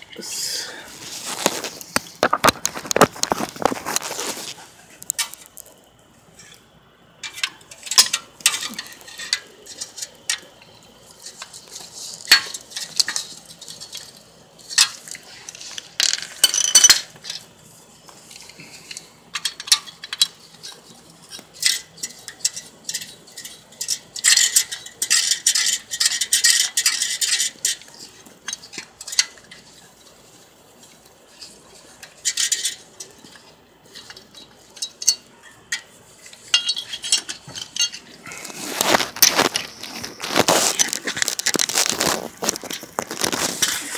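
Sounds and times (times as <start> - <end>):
metal tools clinking and scraping: 7.2 - 17.6, 18.2 - 43.9.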